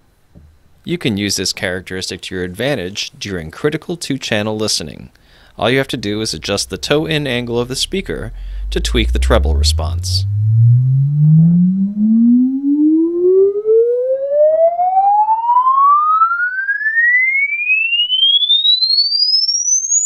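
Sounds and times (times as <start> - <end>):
rising sine-wave sweep tone: 5.5 - 20.0.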